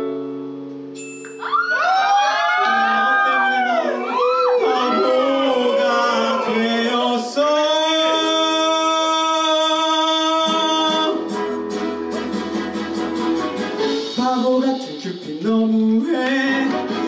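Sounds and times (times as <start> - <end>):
backing track: 2.7 - 17.0
man singing into a microphone: 3.2 - 11.4, 14.1 - 17.0.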